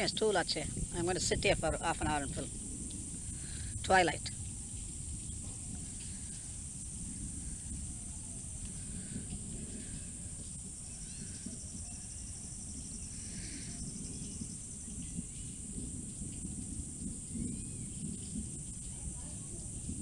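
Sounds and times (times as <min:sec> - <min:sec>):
low rumbling noise: 0:00.0 - 0:20.0
pulsing insect trill: 0:00.0 - 0:20.0
faint chirps: 0:03.3 - 0:15.6
high-pitched insect buzz: 0:05.2 - 0:16.6.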